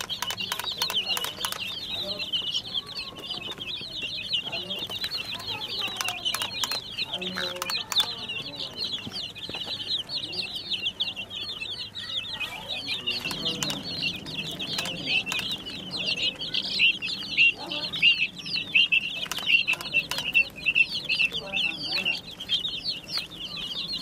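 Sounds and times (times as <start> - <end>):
baby chicks peeping: 0.0 - 24.0.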